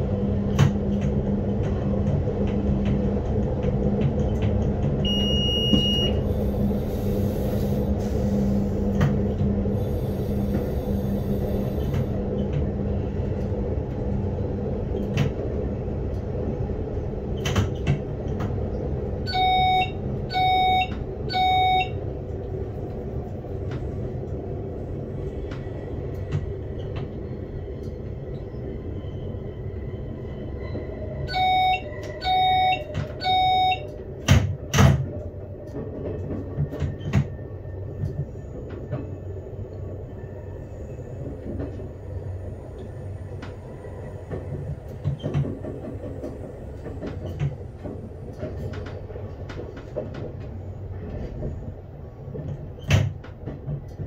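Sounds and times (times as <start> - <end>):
train wheels rumbling: 0.0 - 54.0
warning tone beeps: 5.1 - 6.2, 19.3 - 22.0, 31.3 - 33.9.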